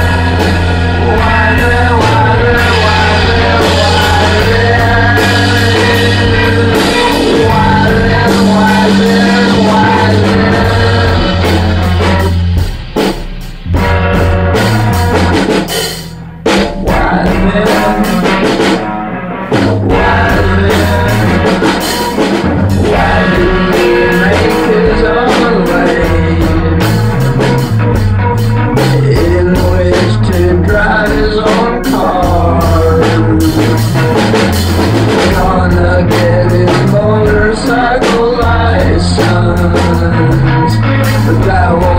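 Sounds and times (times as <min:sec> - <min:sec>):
person singing through rotating speaker: 0:00.0 - 0:12.3, 0:19.8 - 0:21.7, 0:22.8 - 0:27.0
drum kit: 0:00.0 - 0:41.9
guitar: 0:00.0 - 0:41.9.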